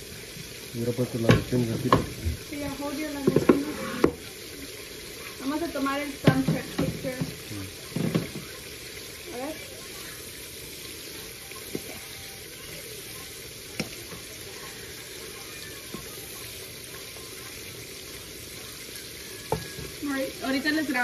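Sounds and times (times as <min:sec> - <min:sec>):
seafood sizzling in frying pan: 0:00.0 - 0:21.0
wooden spoon knocking pan: 0:01.2 - 0:02.2, 0:03.1 - 0:04.2, 0:06.2 - 0:08.4.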